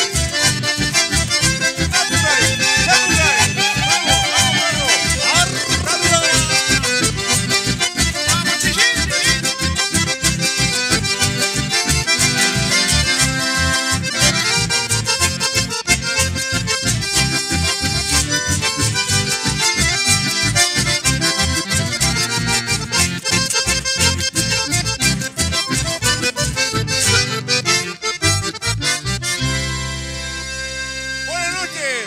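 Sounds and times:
accordions playing: 0.0 - 32.0
guitar: 0.0 - 32.0
pulsing bass beat: 1.9 - 9.5.

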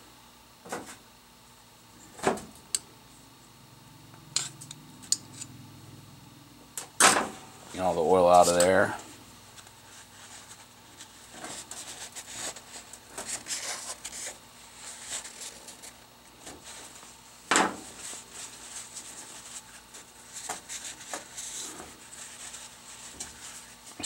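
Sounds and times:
paper towel rubbing: 17.9 - 23.9.

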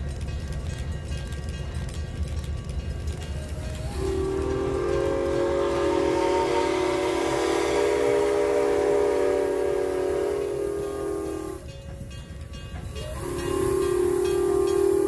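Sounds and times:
steam whistle chime blast: 3.5 - 11.7, 12.9 - 15.0.

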